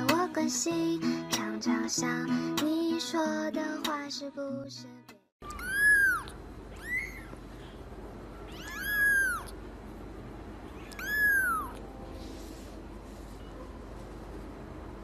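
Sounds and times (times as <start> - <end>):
kitten mewing: 5.4 - 7.8, 8.5 - 9.6, 10.7 - 11.8.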